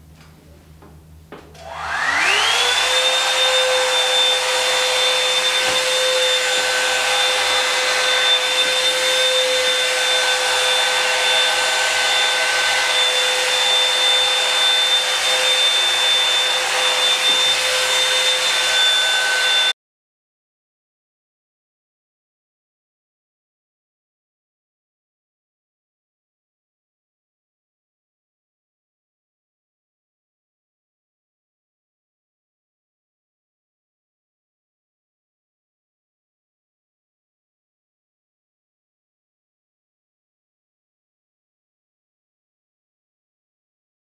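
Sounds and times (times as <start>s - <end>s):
blow-dryer brush motor whining: 1.4s - 19.8s.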